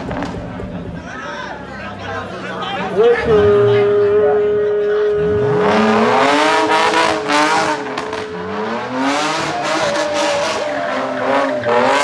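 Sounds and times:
car engine revving: 2.7s - 12.0s
tyres squealing on paving: 7.3s - 12.0s.

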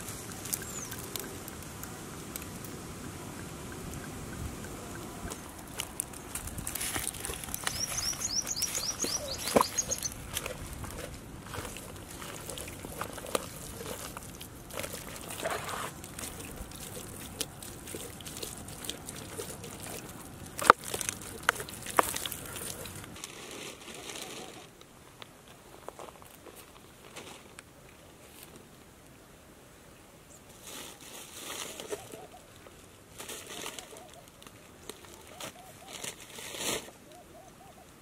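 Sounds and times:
bird chirping: 0.2s - 1.4s, 7.2s - 10.3s
wet squishes of kneading: 5.3s - 23.2s.

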